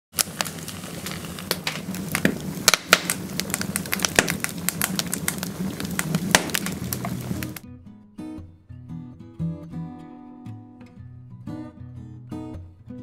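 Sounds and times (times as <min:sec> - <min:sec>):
fire crackling and popping: 0:00.1 - 0:07.6
low fire rumble: 0:00.1 - 0:07.6.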